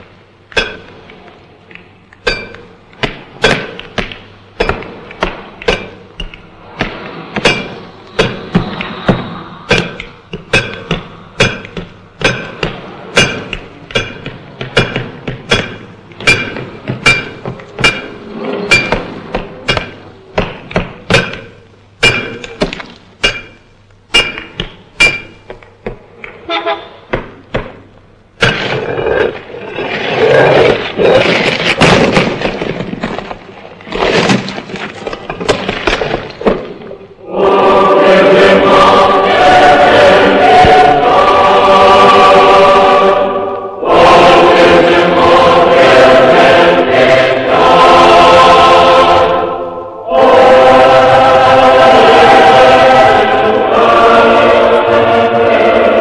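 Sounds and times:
ringing metal strikes: 0.5 - 1.0, 2.2 - 3.8, 4.6 - 25.6
choir singing: 26.4 - 27.1, 37.2 - 56.0
demolition crashing and crumbling: 28.5 - 36.8.

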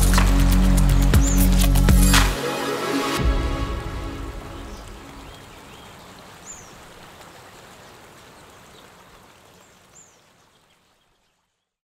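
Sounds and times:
music: 0.0 - 5.2
river rushing: 0.0 - 11.0.

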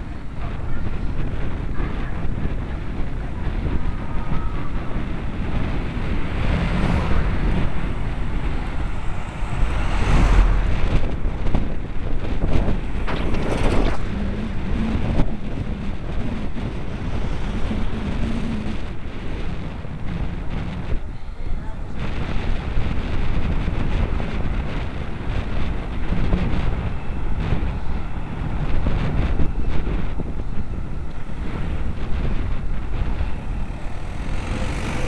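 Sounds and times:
passing motor traffic: 0.0 - 35.0
wind buffeting microphone: 0.0 - 35.0.

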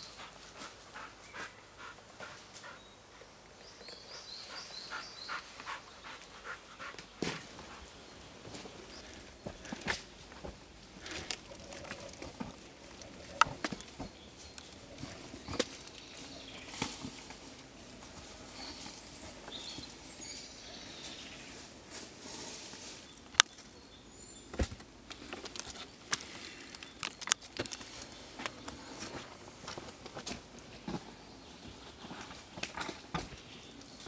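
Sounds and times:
footsteps in woods: 0.0 - 34.0
sharp snaps and knocks: 24.5 - 28.8.

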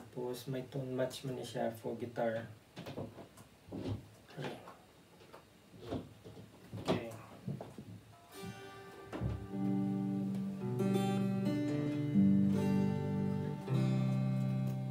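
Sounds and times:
guitar chord strummed and ringing: 8.2 - 14.9
guitar and cable handling clicks: 13.6 - 14.9.

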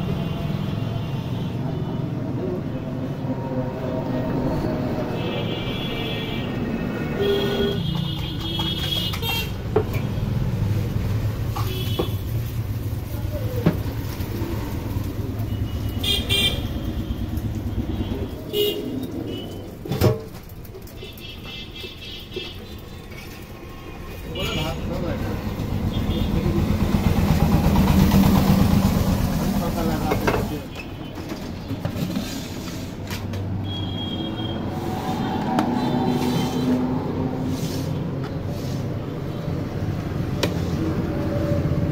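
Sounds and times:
street traffic: 0.0 - 41.9
vehicle horns tooting: 5.1 - 9.6, 11.6 - 12.3, 15.4 - 19.6, 33.6 - 37.0
vehicle engine running: 24.9 - 30.4.

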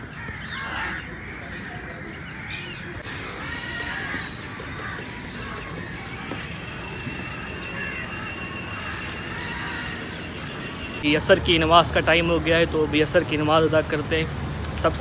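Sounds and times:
crows calling: 0.0 - 11.0
steady background noise: 0.0 - 15.0.

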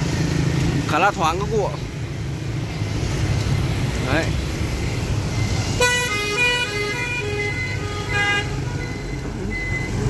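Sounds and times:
motorbike and street traffic: 0.0 - 10.0
electronic beeping tune: 8.8 - 10.0
high beeps: 8.8 - 10.0.

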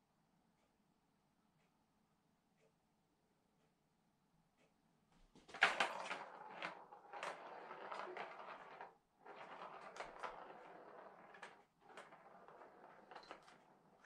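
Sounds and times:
plastic ball rolling on track: 5.5 - 14.0.

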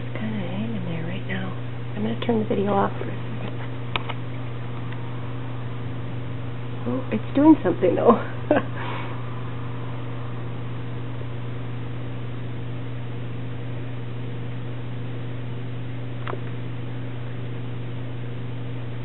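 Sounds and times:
low hum: 0.0 - 19.0
small click: 3.9 - 4.2, 16.2 - 16.6.

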